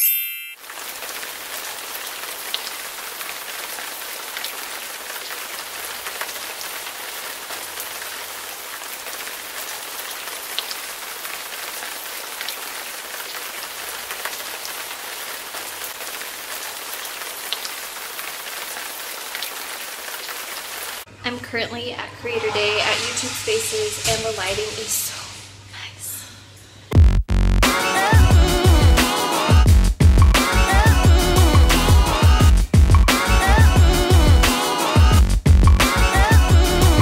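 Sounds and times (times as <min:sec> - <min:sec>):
rain on a car windshield: 0:00.6 - 0:21.1.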